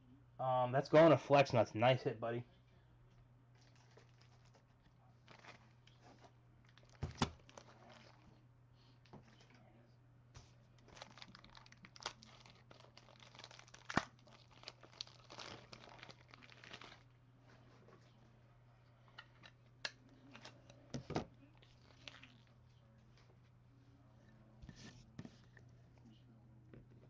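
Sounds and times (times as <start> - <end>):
faint low hum: 0.0 - 27.0
plastic packaging crinkling: 3.6 - 8.3, 10.8 - 17.1, 21.6 - 22.6.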